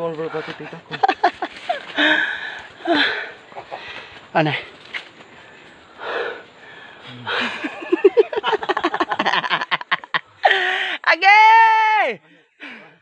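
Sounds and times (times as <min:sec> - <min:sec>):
breathless laughter: 0:00.3 - 0:04.2, 0:06.0 - 0:11.0.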